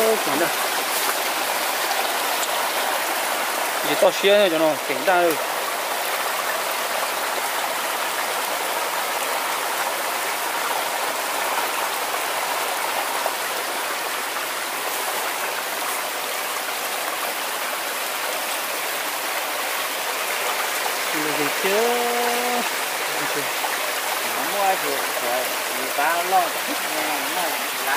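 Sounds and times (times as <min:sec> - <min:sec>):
stream running over rocks: 0:00.0 - 0:27.9.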